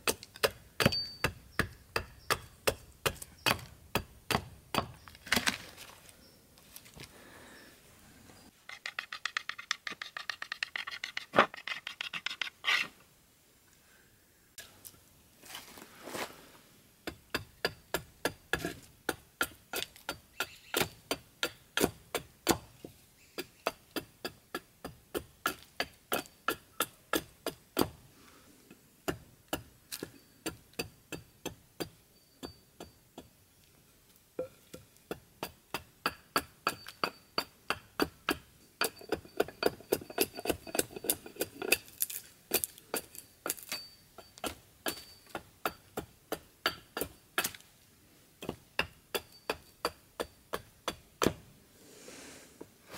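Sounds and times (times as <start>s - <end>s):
hatchet chopping wood: 0.0s - 5.6s, 17.0s - 28.0s, 29.0s - 33.3s, 34.4s - 47.6s, 48.4s - 51.5s.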